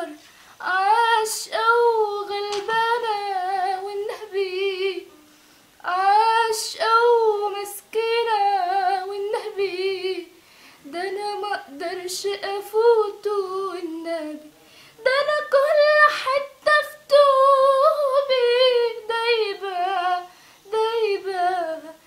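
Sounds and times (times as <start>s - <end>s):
girl singing unaccompanied: 0.0s - 22.0s
singer breathing: 0.2s - 0.6s, 10.4s - 10.9s, 14.6s - 15.0s, 20.3s - 20.7s.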